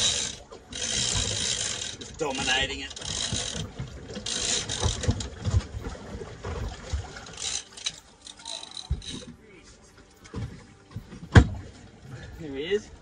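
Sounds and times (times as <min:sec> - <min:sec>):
fishing reel ratchet clicking: 0:00.0 - 0:05.2, 0:07.3 - 0:09.3.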